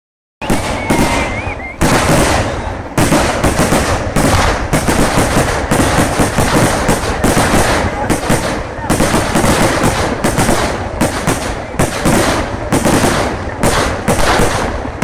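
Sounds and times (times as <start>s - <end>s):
wavering whistle: 0.4s - 1.8s, 2.4s - 2.8s
firecracker bangs: 0.4s - 15.0s.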